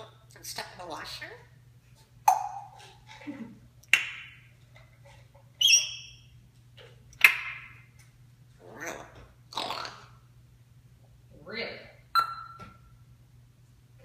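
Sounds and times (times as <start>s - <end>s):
parrot squawking: 5.6s - 6.2s, 8.6s - 10.2s
parrot whistled beep: 12.2s - 12.7s.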